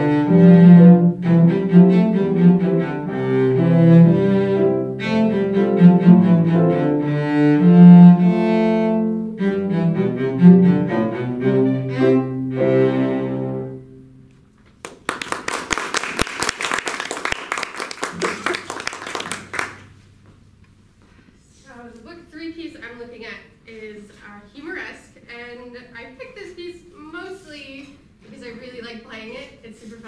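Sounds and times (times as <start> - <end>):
cello with piano: 0.0 - 14.3
audience applause: 14.8 - 19.9.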